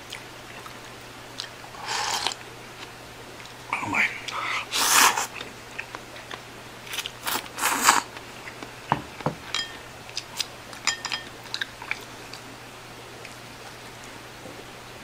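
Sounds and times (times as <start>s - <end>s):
chewing clicks: 0.0s - 3.6s, 11.4s - 12.5s
noodles slurped: 1.4s - 2.4s, 4.2s - 5.4s, 6.9s - 8.1s
bowl knocking on wooden table: 8.9s - 9.4s.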